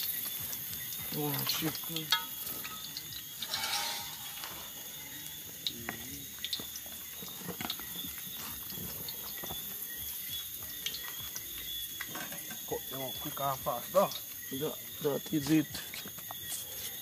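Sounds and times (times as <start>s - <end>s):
seasoning sizzling in hot oil: 0.0s - 17.0s.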